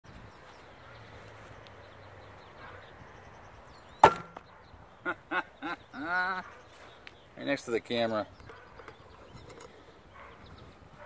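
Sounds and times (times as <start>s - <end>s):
knife striking wooden target: 4.0s - 4.5s.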